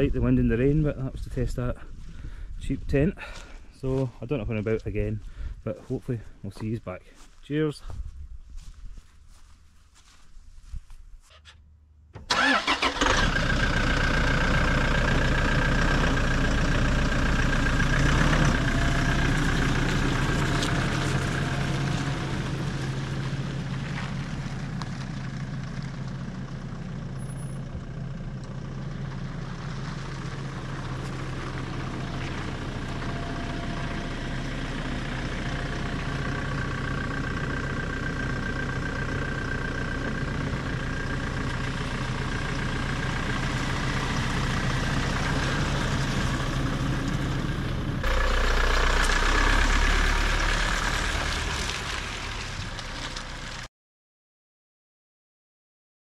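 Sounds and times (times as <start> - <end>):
car engine starting and running: 11.3 - 53.7.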